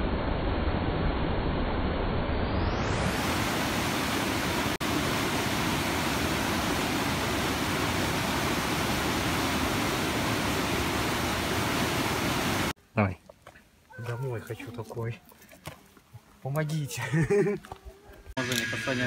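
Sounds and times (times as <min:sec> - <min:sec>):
waterfall rushing: 0:02.9 - 0:12.8.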